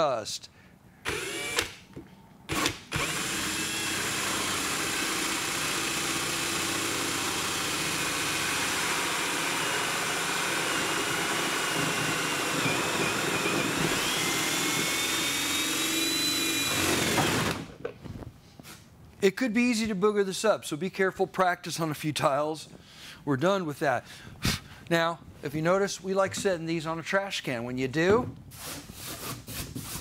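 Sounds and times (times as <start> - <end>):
drill cutting with hole saw: 1.0 - 1.8, 2.5 - 17.7.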